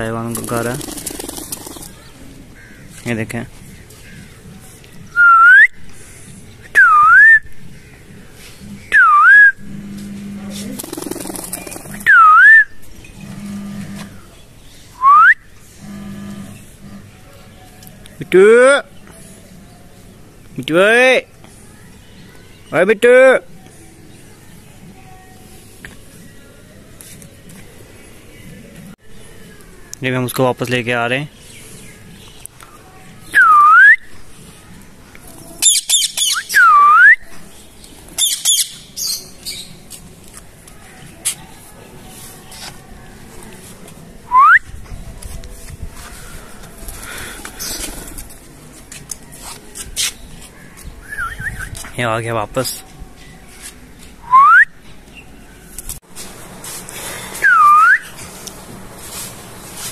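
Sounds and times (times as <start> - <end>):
person whistling: 8.9 - 9.6, 12.0 - 12.7, 15.0 - 15.4, 44.3 - 44.7, 54.3 - 54.7, 57.4 - 58.1
parakeet squawking: 38.2 - 39.6.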